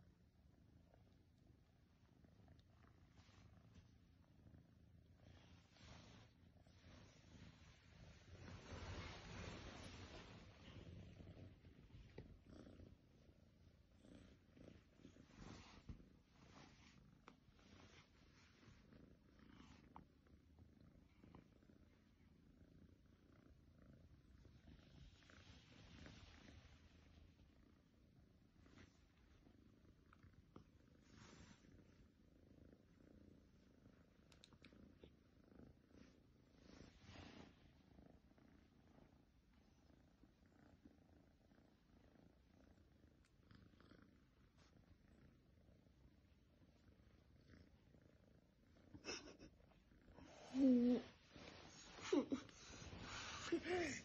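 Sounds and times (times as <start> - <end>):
cat purring: 0.0 - 54.0
faint ticks: 34.2 - 34.8.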